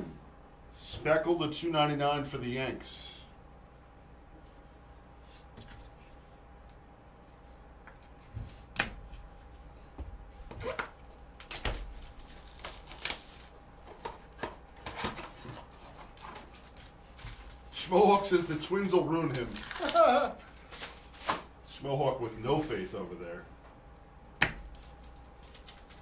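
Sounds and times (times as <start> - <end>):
faint steady hum: 0.0 - 26.0
plastic wrap crinkling: 10.6 - 13.6, 15.6 - 18.6, 19.2 - 21.5, 24.6 - 26.0.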